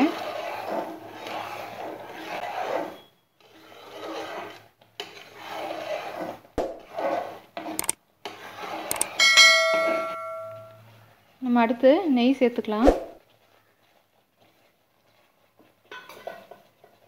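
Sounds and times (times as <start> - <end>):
spoon scraping a pot: 0.0 - 11.0, 13.3 - 17.0
sharp click: 8.9 - 9.1.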